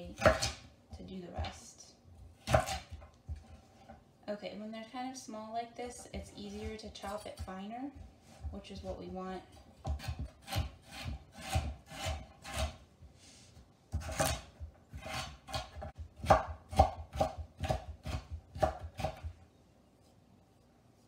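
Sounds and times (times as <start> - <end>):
knife chopping on wooden board: 0.0 - 0.7, 2.3 - 3.6, 9.8 - 12.8, 13.9 - 19.4.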